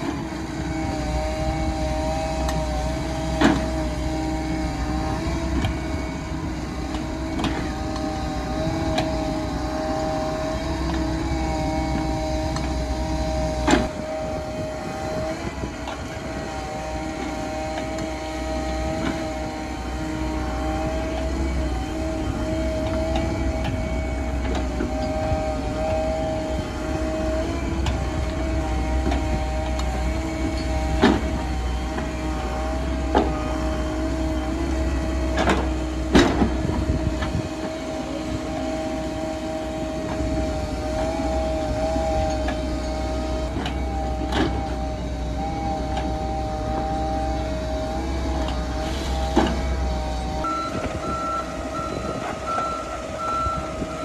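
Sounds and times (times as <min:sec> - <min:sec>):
excavator engine and hydraulics whine: 0:00.0 - 0:54.0
pulsed warning beeper: 0:50.4 - 0:54.0.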